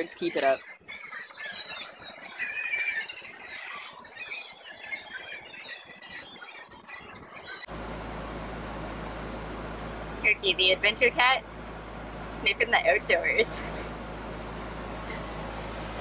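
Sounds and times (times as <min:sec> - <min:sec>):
gulls squawking: 0:00.0 - 0:16.0
low hum: 0:07.7 - 0:16.0
steady hiss: 0:07.7 - 0:16.0.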